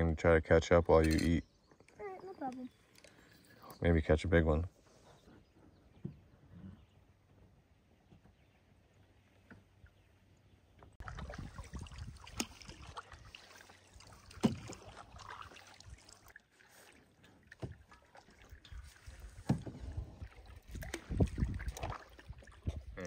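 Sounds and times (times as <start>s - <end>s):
water splashing around paddle: 10.8s - 23.0s.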